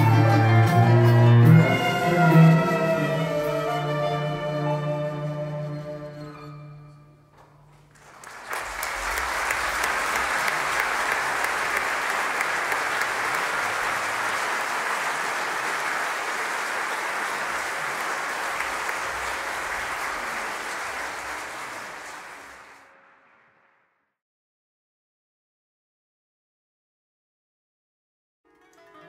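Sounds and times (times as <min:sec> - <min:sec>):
audience applauding: 0:07.9 - 0:23.6.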